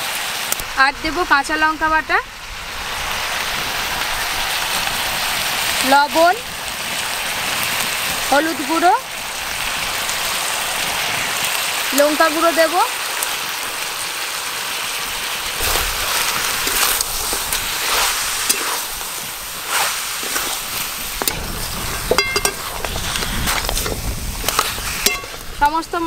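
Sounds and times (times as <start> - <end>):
meat sizzling in oil: 0.0 - 26.0
metal spatula scraping pan: 15.6 - 25.4
spatula clinking on pan: 22.1 - 22.6, 25.0 - 25.4.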